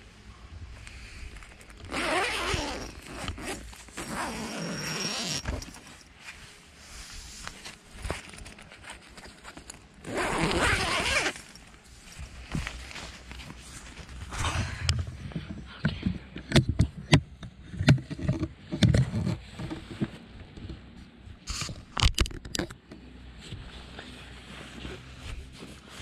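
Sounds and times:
fabric rustling: 1.2s - 14.8s
tent zipper pulled open: 1.5s - 5.9s, 10.0s - 11.6s.

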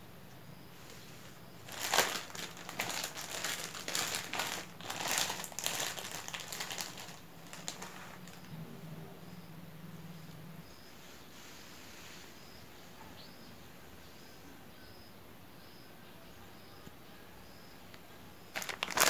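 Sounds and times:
plastic bag crinkling: 0.9s - 8.5s, 18.5s - 19.0s.

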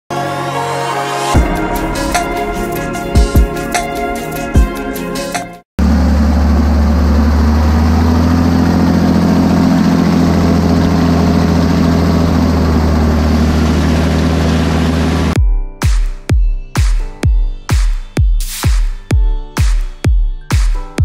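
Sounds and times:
motorboat engine droning: 5.8s - 15.4s.

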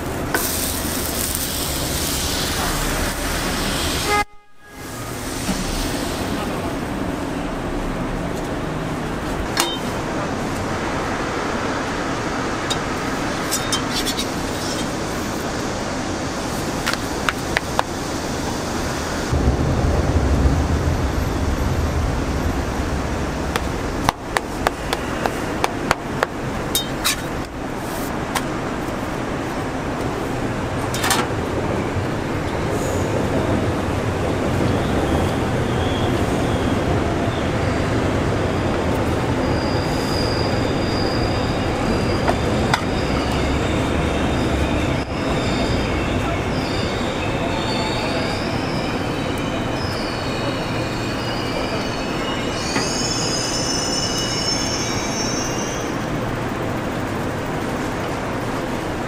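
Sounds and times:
train rumbling past: 0.0s - 59.0s
high wavering wheel squeal: 34.4s - 57.9s.

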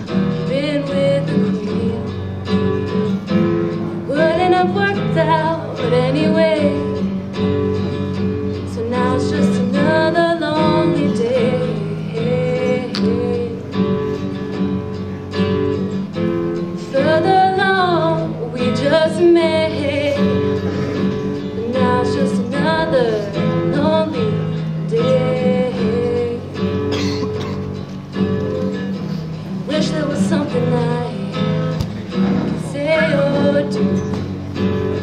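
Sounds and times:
acoustic guitar: 0.0s - 35.0s
woman singing: 0.4s - 2.6s, 4.1s - 7.1s, 8.6s - 14.0s, 16.8s - 20.6s, 21.4s - 26.7s, 29.6s - 31.8s, 32.4s - 34.2s.

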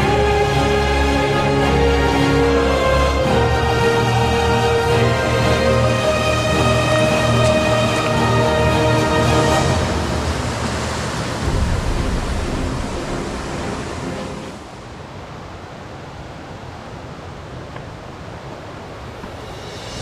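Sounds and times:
background music: 0.0s - 14.8s
steady rushing noise: 0.0s - 20.0s.

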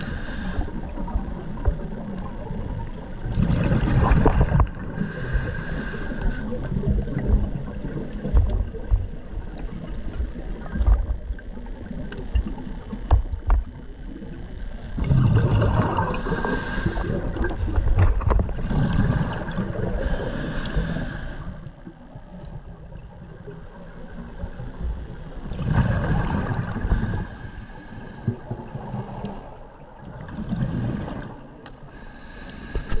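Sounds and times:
regulator hiss on inhale: 0.0s - 2.0s, 5.0s - 6.8s, 16.1s - 17.4s, 19.9s - 21.8s, 23.7s - 25.5s, 26.8s - 28.5s, 31.9s - 33.0s
bubbles bursting on exhale: 15.0s - 17.6s.

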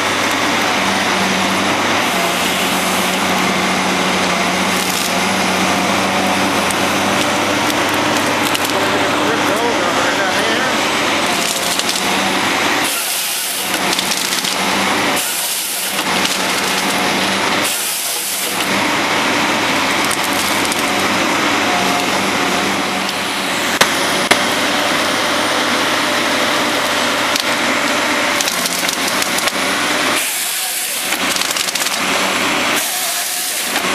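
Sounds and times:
harvester engine and hydraulics: 0.0s - 33.9s
wood cracking and splintering: 1.8s - 9.7s, 11.2s - 22.2s, 26.8s - 33.9s
sharp cracks: 11.3s - 12.2s, 13.5s - 14.6s, 28.3s - 29.6s, 31.0s - 32.1s.

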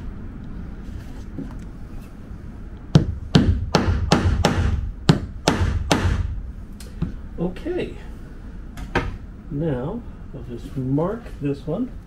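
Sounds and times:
hammer striking nail into wood: 2.9s - 6.4s.

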